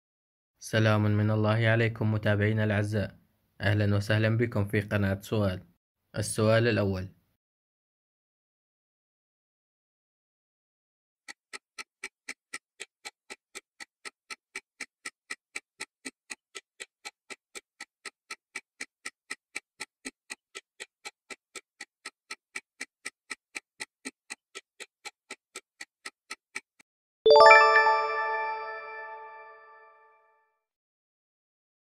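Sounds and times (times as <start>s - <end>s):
clock-like timer ticking: 11.3s - 26.8s.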